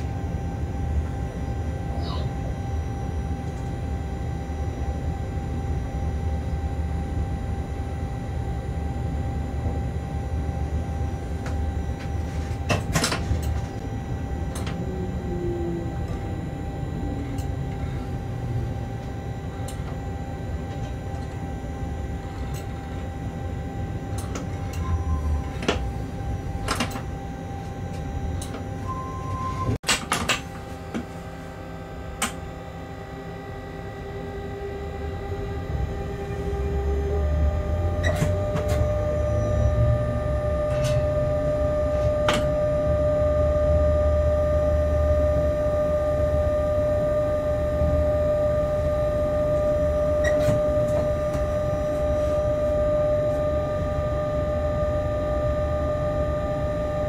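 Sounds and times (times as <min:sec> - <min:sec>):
electrical hum: 0:00.0 - 0:57.0
short beeps: 0:28.8 - 0:29.8, 0:37.5 - 0:57.0.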